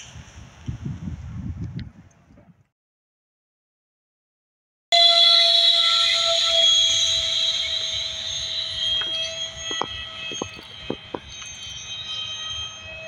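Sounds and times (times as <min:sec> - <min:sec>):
electric jet motor whine: 0:05.0 - 0:13.0.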